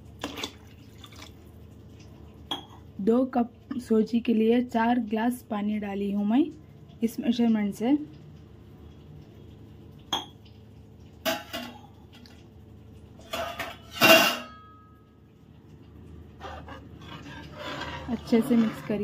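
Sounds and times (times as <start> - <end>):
metal utensils clinking on pan: 13.2 - 14.9.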